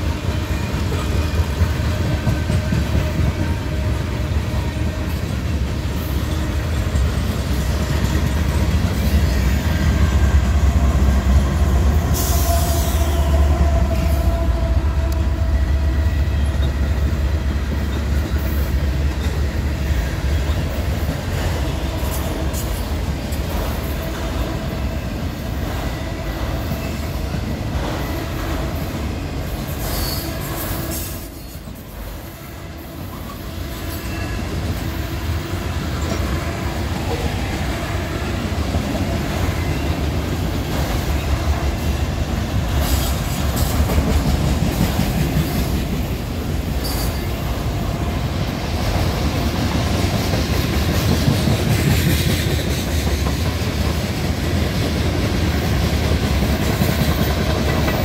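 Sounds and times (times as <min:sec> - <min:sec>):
rail clatter: 0:00.0 - 0:32.2, 0:33.1 - 0:58.0
train wheel squeal: 0:00.0 - 0:35.2, 0:38.3 - 0:47.8.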